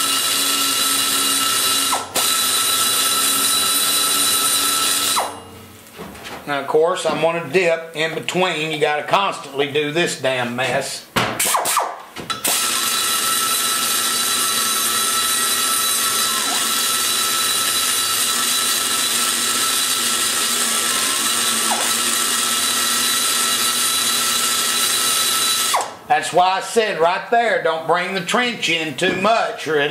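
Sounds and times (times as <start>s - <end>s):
die grinder cutting metal: 0.0s - 5.4s, 12.4s - 26.0s.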